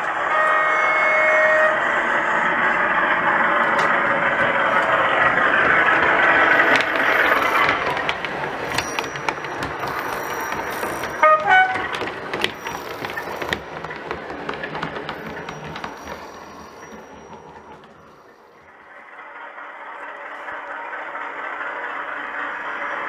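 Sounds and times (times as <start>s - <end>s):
model locomotive engine running: 0.0s - 23.0s
two-note horn toot: 11.2s - 11.8s.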